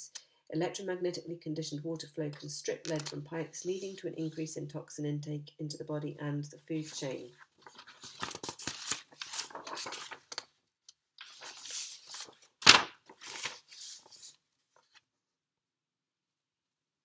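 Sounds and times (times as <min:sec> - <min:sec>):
rustling and scraping handling noises: 0:06.8 - 0:10.4.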